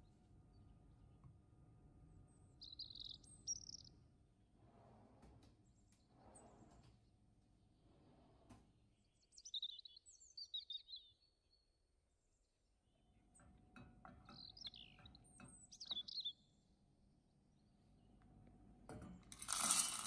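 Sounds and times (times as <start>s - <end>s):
birds chirping: 2.2s - 4.0s, 8.8s - 16.8s.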